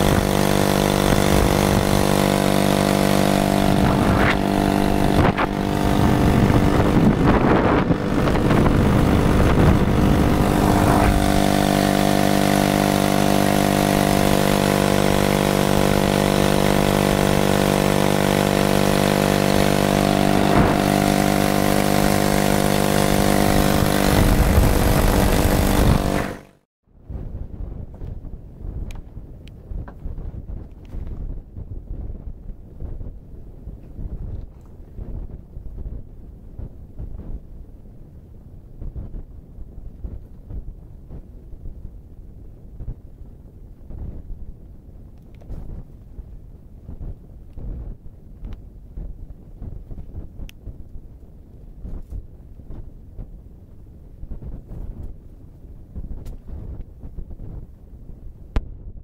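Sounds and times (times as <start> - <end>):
small motorbike engine running: 0.0 - 26.6.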